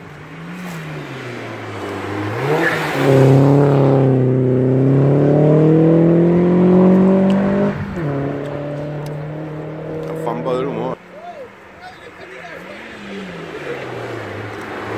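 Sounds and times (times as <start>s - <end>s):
race car engine accelerating: 0.3s - 11.0s.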